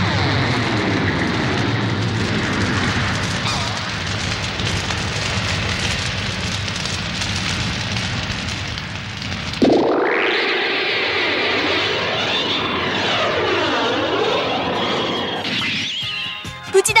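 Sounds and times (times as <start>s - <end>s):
low hum: 9.6s - 15.6s.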